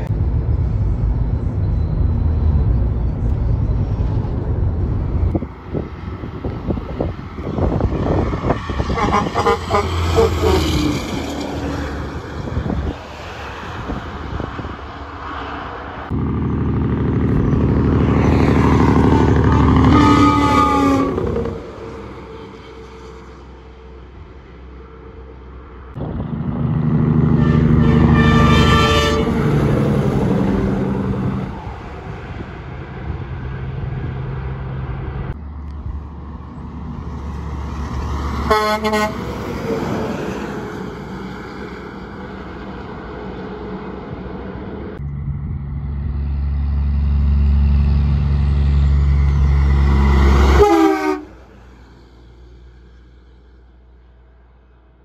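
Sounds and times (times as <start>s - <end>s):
diesel trucks driving past: 0.0s - 55.0s
truck air horn blasts: 8.8s - 11.1s, 17.9s - 23.2s, 27.2s - 29.7s, 38.4s - 39.4s, 50.3s - 51.5s.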